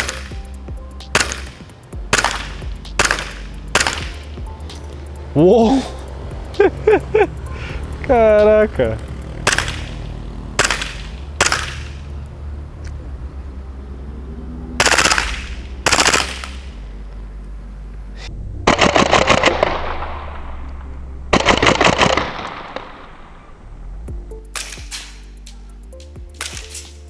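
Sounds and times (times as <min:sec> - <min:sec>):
airsoft pistol firing: 0:01.1 - 0:04.2, 0:09.4 - 0:10.0, 0:10.6 - 0:12.0, 0:14.8 - 0:16.6, 0:21.4 - 0:22.9, 0:24.6 - 0:25.2.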